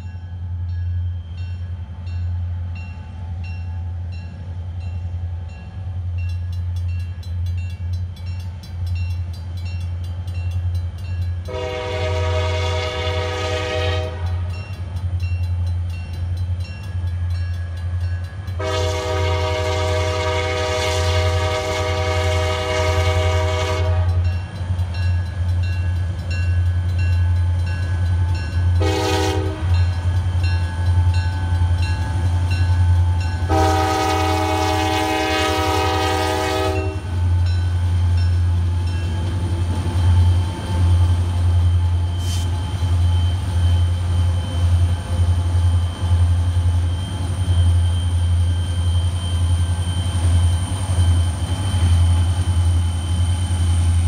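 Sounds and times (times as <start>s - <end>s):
locomotive air horn blasts: 11.5s - 14.5s, 18.6s - 24.3s, 28.8s - 29.9s, 33.5s - 37.2s.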